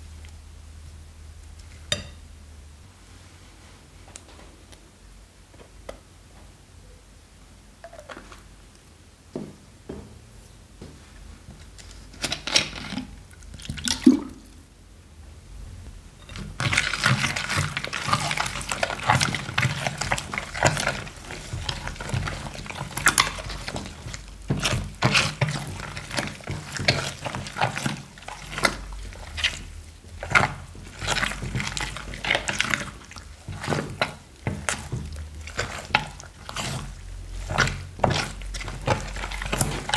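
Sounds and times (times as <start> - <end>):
spatula stirring squelching slime: 11.7 - 14.6, 16.2 - 39.9.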